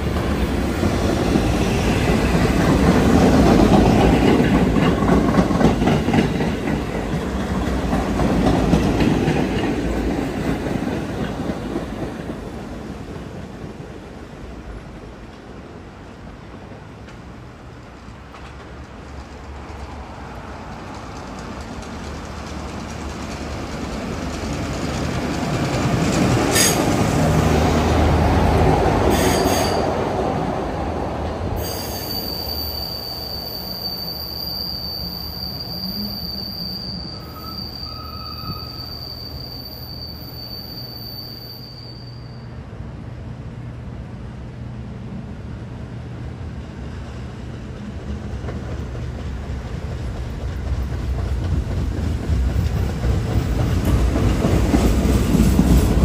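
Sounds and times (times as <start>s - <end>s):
rail vehicles rumbling on rails: 0.0s - 56.0s
high-pitched wheel squeal: 29.1s - 29.9s, 31.6s - 42.6s.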